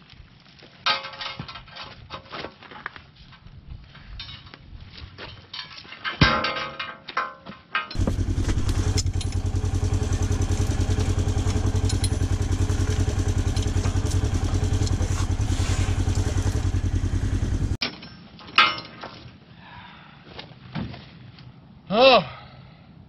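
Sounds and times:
sharp metal clank: 7.8 - 9.8, 10.6 - 15.2
utility vehicle engine idling: 8.0 - 17.8.

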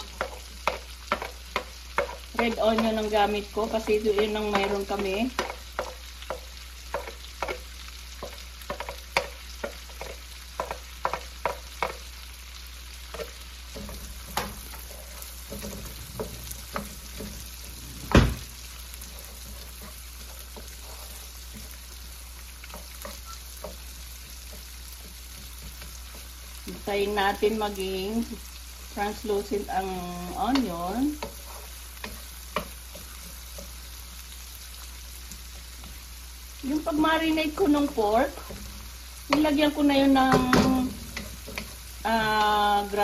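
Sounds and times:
spatula stirring and scraping: 0.0 - 27.7, 28.3 - 43.0
onion sizzling in oil: 0.0 - 43.0
spatula clattering against pan: 8.2 - 12.1
loud knock: 18.1 - 18.5.

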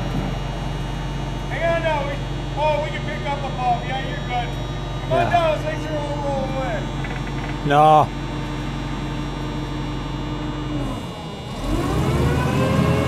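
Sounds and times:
forklift engine idling and revving: 6.8 - 13.0.

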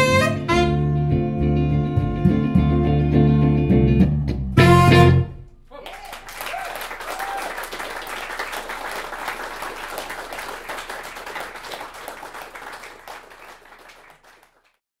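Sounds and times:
audience applauding: 5.8 - 14.8.

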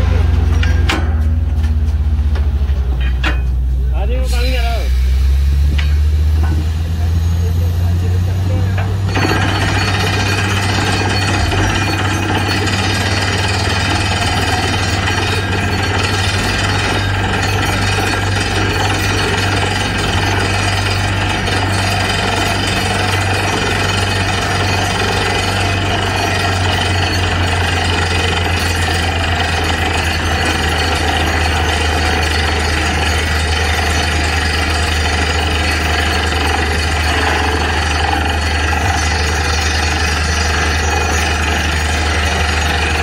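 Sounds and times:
engine and compressor drone: 0.0 - 43.0
drill hammering rattle: 9.0 - 43.0.

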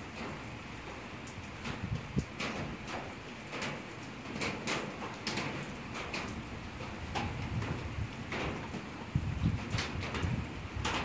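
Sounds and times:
steady hiss of rain: 0.0 - 11.0
low rumbling gusts: 7.1 - 8.5, 9.1 - 11.0.

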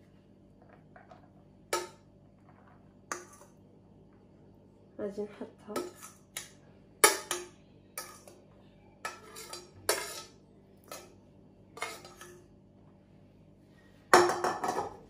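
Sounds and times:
metal fork scraping frying pan: 5.8 - 7.4, 8.0 - 8.4, 9.0 - 11.1, 11.8 - 12.4.

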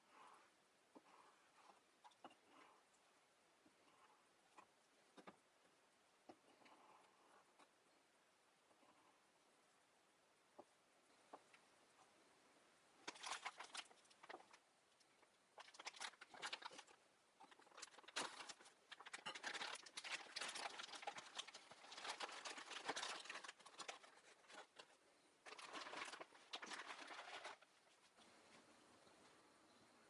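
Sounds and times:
plastic bag crinkling: 15.6 - 27.7.

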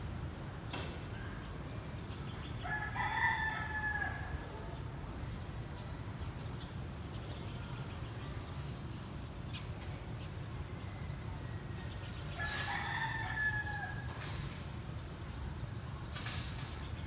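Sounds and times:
rooster crowing: 2.6 - 4.4, 12.2 - 14.2.

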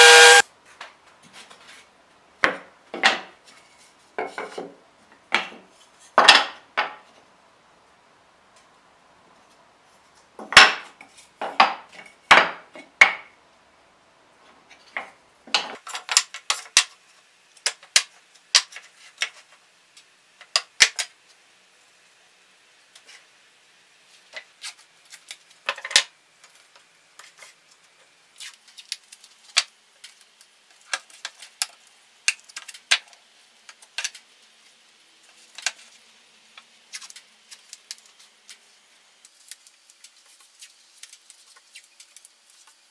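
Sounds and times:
wood pieces knocking on workbench: 2.4 - 3.4, 4.2 - 7.0.

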